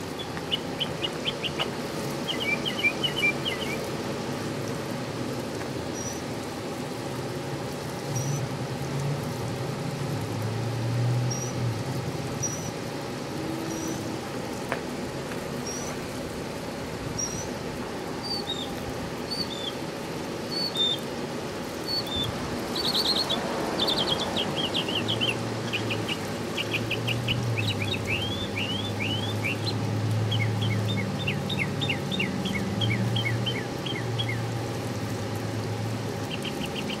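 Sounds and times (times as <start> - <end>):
small birds chirping: 0.0 - 4.1, 5.9 - 6.4, 8.1 - 8.5, 12.4 - 12.8, 15.6 - 16.0, 17.1 - 17.6, 18.2 - 19.8, 20.4 - 21.1, 21.8 - 37.0
window air conditioner running: 0.0 - 37.0.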